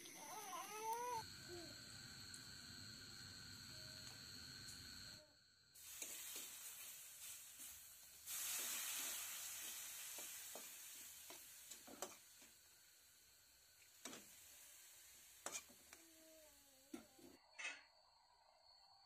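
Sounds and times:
onion sizzling in hot oil: 5.7 - 16.9.

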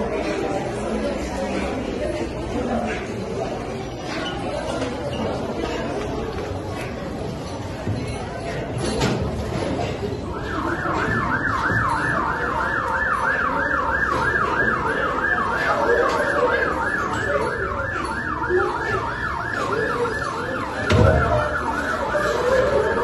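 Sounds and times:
thump: 20.9 - 21.4.

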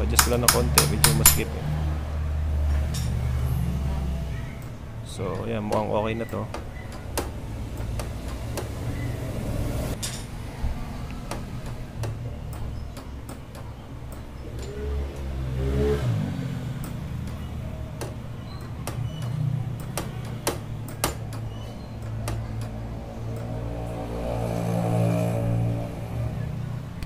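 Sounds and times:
sharp clicks and light taps: 0.1 - 1.4, 4.6 - 8.9, 11.0 - 14.7, 16.8 - 23.6.

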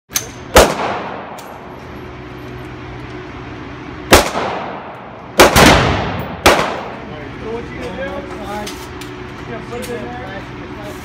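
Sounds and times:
echoing rifle shots indoors: 0.5 - 1.4, 4.1 - 6.9.

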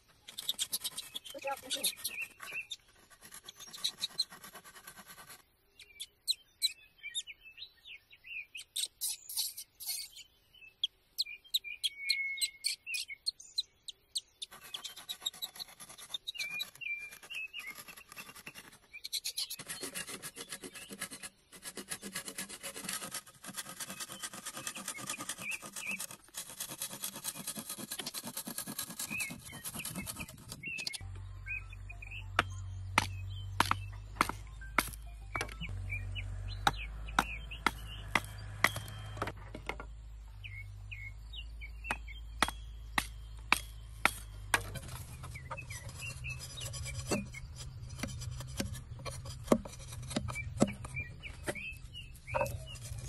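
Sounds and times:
hand saw cutting bamboo: 19.4 - 30.7, 36.5 - 39.4, 42.4 - 50.9.

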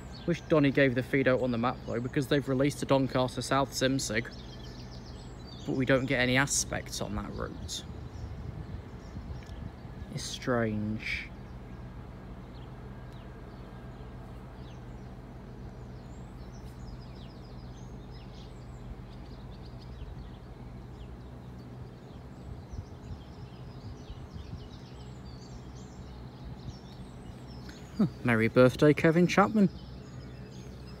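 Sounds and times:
low outdoor hum: 0.0 - 31.0
small birds chirping: 0.0 - 31.0.

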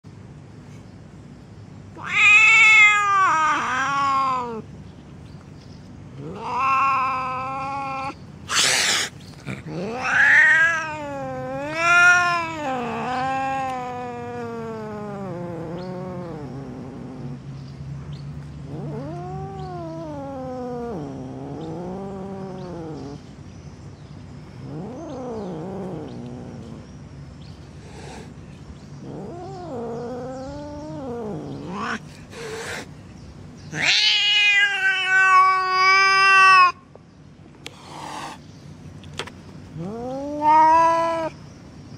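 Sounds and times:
cats caterwauling: 1.9 - 4.7, 6.2 - 17.4, 18.6 - 23.2, 24.6 - 26.8, 29.0 - 32.9, 33.7 - 36.9, 39.7 - 41.4
cat growling: 2.0 - 4.6, 6.2 - 17.4, 18.6 - 23.2, 24.6 - 26.9, 29.0 - 32.9, 33.7 - 36.8, 39.7 - 41.4
cat hissing: 2.0 - 4.6, 6.2 - 17.4, 27.8 - 28.4, 29.0 - 33.1, 33.7 - 36.8, 37.6 - 38.4, 39.7 - 41.4.

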